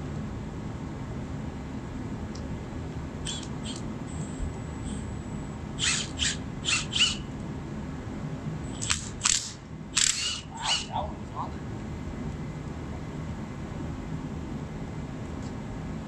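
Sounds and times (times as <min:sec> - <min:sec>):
cordless drill screeching on metal: 0:03.2 - 0:05.0, 0:05.8 - 0:07.3, 0:09.3 - 0:10.9.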